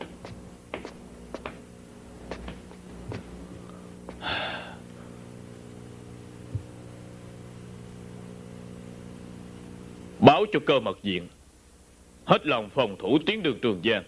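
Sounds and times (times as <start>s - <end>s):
man sighing: 4.2s - 4.9s.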